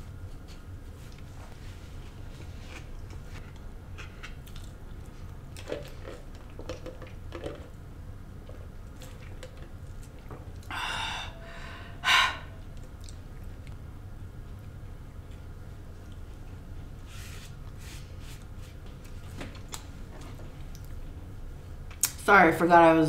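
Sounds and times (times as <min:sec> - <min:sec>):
person chewing fried food: 0:02.8 - 0:06.6.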